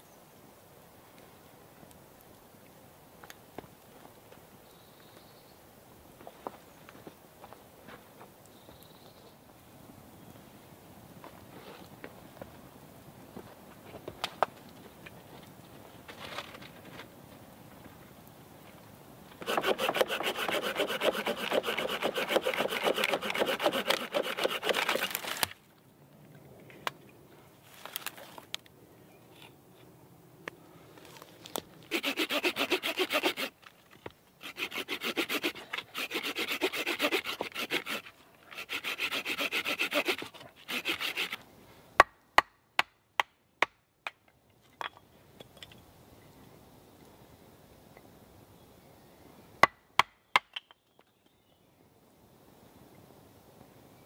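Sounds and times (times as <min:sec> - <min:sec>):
hand saw rasping through wood: 0:19.4 - 0:25.5, 0:31.9 - 0:33.6, 0:34.4 - 0:41.4.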